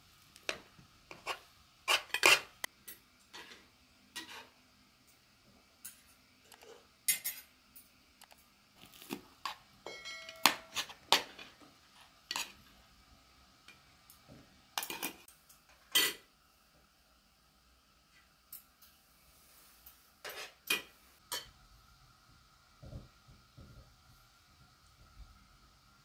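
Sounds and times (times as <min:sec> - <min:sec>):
spoons clinking on metal plates: 0:05.8 - 0:07.9, 0:09.8 - 0:11.6, 0:14.8 - 0:16.3, 0:19.8 - 0:21.6.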